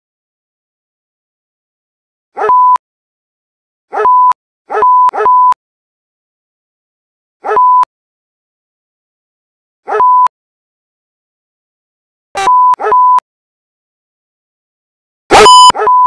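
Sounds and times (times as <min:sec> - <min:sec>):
censor beep: 0:12.4 - 0:13.2, 0:15.3 - 0:16.0
dog bark: 0:12.8 - 0:13.0.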